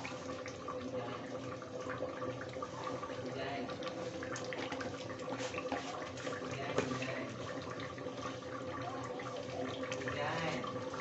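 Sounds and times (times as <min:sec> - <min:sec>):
liquid simmering with bubbling ticks: 0:00.0 - 0:11.0.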